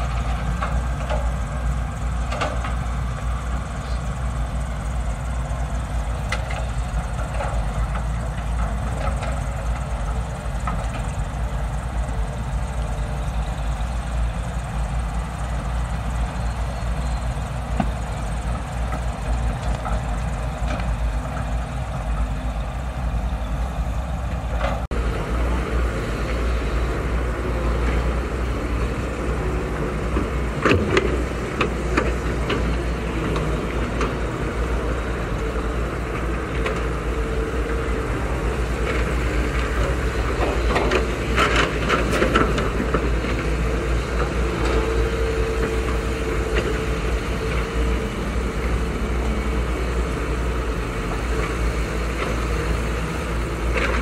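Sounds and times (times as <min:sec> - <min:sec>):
excavator diesel engines running: 0:00.0 - 0:54.0.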